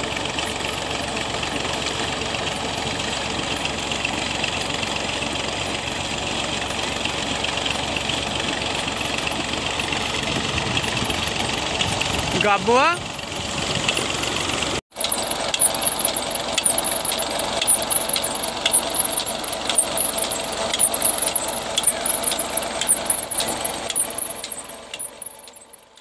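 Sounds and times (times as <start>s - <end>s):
drive shaft rattle: 0.0s - 26.0s
tractor engine running: 0.0s - 26.0s
high chirp: 15.0s - 25.9s.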